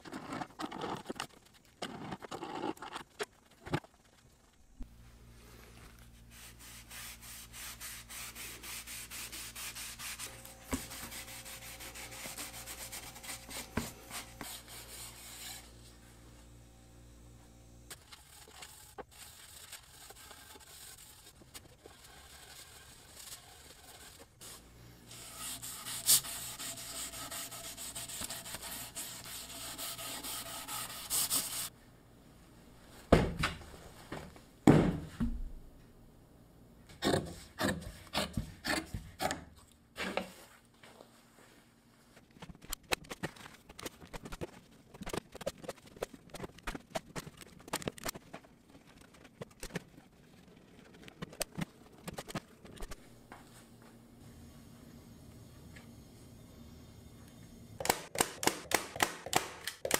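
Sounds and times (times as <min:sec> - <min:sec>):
rubbing strokes over wood: 0:06.2 - 0:15.7, 0:18.2 - 0:31.7.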